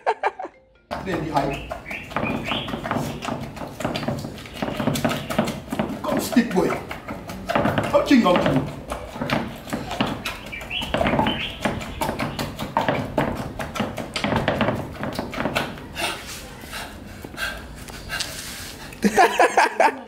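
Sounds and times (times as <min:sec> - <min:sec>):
pestle pounding in a mortar: 0:00.9 - 0:16.2.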